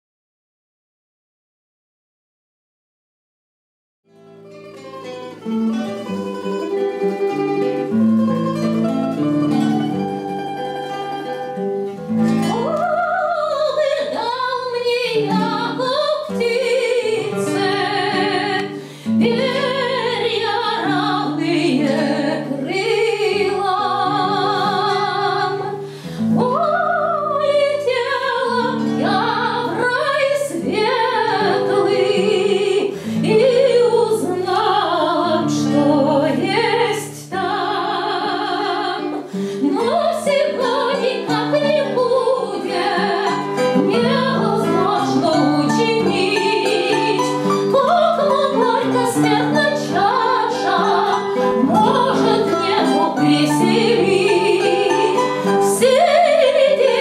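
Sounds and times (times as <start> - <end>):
acoustic guitar: 4.1 - 57.0
woman singing operatically: 12.5 - 25.8, 26.4 - 57.0.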